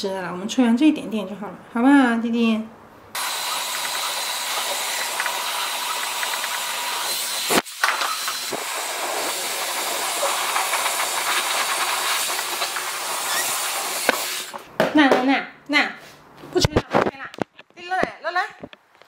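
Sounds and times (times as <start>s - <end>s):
hair dryer blowing with high whine: 3.2s - 14.6s.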